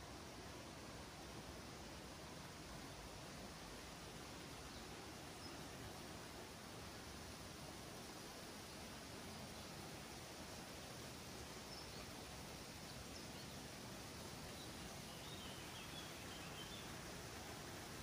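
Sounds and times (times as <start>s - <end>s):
faint outdoor hiss: 0.0s - 18.0s
faint bird chirps: 11.6s - 17.0s.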